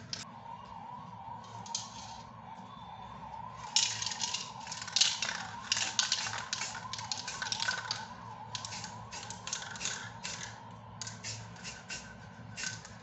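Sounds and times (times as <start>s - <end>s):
spray paint can hissing: 3.7s - 13.0s.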